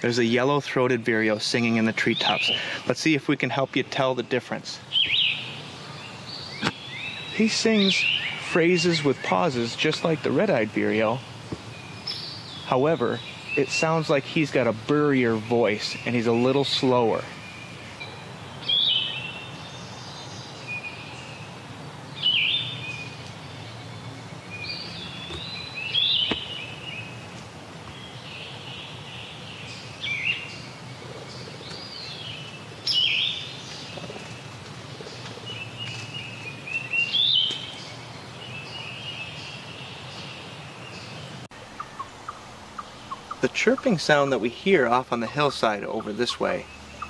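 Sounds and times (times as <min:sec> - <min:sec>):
faint bird chirps: 0:00.0 - 0:02.9, 0:04.8 - 0:21.6, 0:27.9 - 0:47.0.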